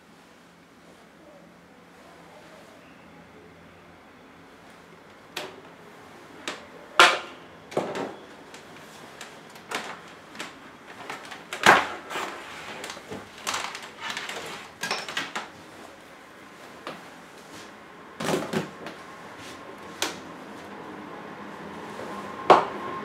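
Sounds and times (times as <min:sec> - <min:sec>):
clothing rustle: 0:08.3 - 0:20.8.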